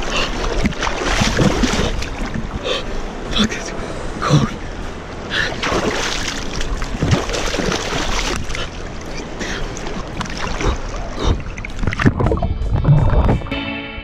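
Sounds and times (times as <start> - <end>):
person splashing water: 0.0 - 2.4, 5.5 - 8.8, 9.6 - 12.4
river water rushing: 0.0 - 12.3.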